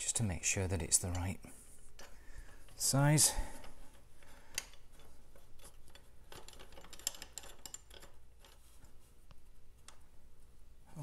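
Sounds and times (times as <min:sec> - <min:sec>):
spanner clicking on metal nut: 0:03.6 - 0:08.7.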